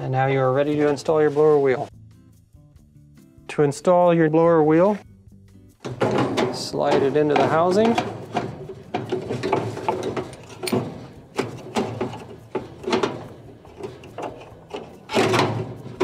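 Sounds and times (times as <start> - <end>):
loud rattle: 5.8 - 16.0
plastic scraping and knocking on metal: 5.8 - 16.0.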